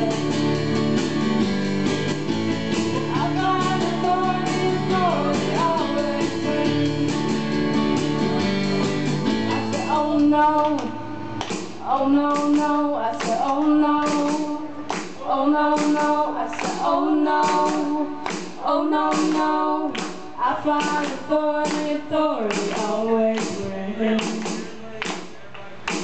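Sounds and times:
person singing: 0.0s - 0.6s, 2.9s - 7.5s, 9.5s - 11.1s, 11.8s - 25.0s
live band playing: 0.0s - 11.8s.

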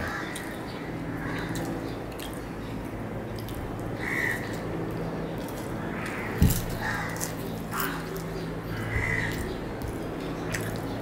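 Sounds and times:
low electrical hum: 0.0s - 11.0s
man chewing: 3.3s - 3.9s.

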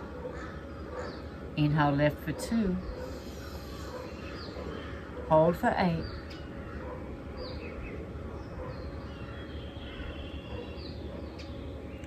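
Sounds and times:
bird chirps: 5.9s - 12.0s.

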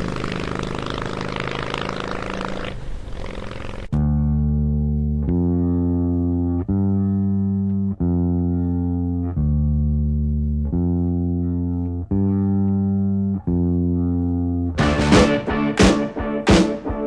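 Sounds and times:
low plucked string notes: 4.0s - 17.0s.

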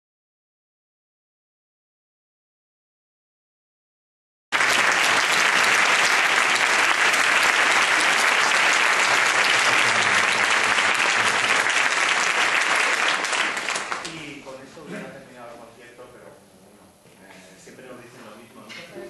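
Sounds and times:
audience applauding: 4.5s - 14.3s.

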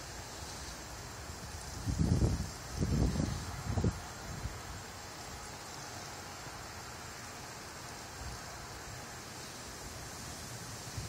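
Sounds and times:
faint wind rumble on microphone: 0.0s - 6.4s
outdoor hiss: 0.0s - 11.0s.

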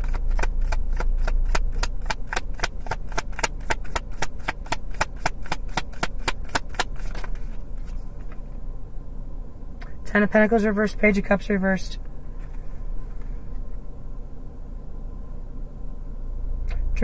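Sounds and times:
cards being shuffled: 0.0s - 8.4s.

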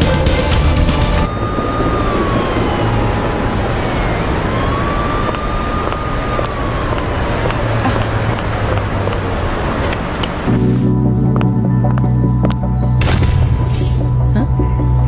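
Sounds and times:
emergency siren wailing: 0.0s - 12.6s
city traffic: 0.0s - 15.0s.

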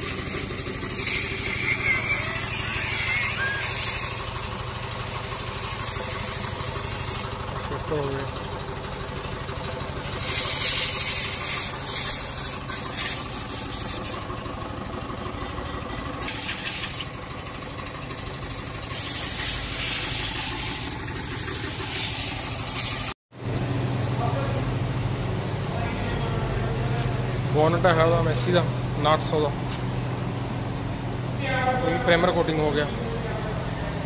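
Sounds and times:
compressed air hissing: 0.0s - 7.5s, 10.0s - 14.3s, 16.2s - 17.1s, 18.9s - 23.2s
engine hum: 0.0s - 34.0s.

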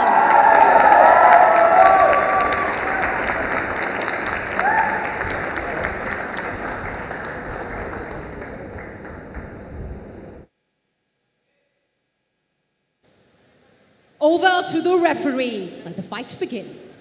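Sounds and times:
crowd applauding and cheering: 0.0s - 10.4s.

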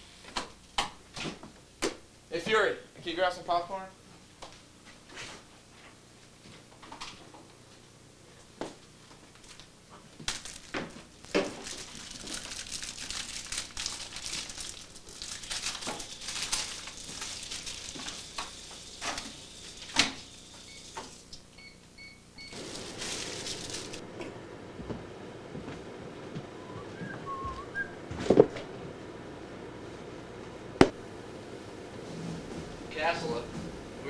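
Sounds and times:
microwave oven humming: 0.0s - 34.0s
popcorn bag crinkling: 9.4s - 18.4s, 22.5s - 24.0s
microwave keypad beeps: 21.6s - 22.8s.

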